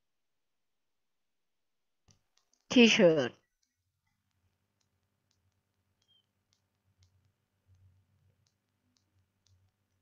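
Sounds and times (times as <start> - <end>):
faint scattered clicks: 2.0 - 10.0.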